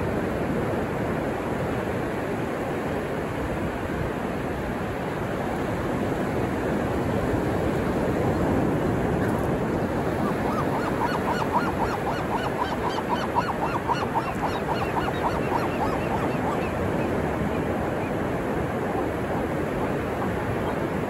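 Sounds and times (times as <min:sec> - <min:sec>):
ocean surf: 0:00.0 - 0:21.0
gull squawking: 0:10.1 - 0:18.1.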